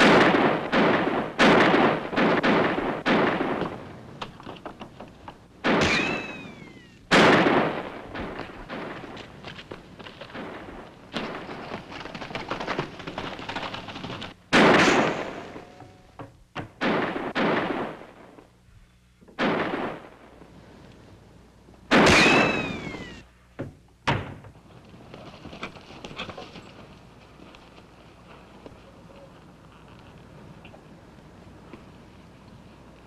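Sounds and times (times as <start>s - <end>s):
revolver gunshots: 0.0s - 3.9s, 5.6s - 9.2s, 14.5s - 15.8s, 16.7s - 18.5s, 19.4s - 20.4s, 21.9s - 23.2s
ricochet whine: 5.6s - 9.2s, 12.6s - 16.2s, 21.9s - 23.3s
horse galloping: 8.3s - 14.5s, 24.8s - 33.0s.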